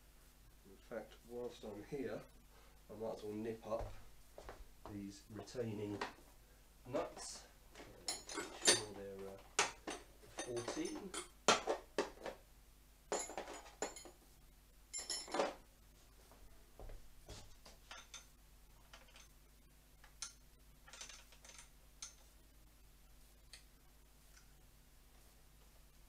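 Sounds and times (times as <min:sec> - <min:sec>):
metal spanner clinking on nuts: 0:08.1 - 0:09.0, 0:09.6 - 0:11.7, 0:20.2 - 0:22.2.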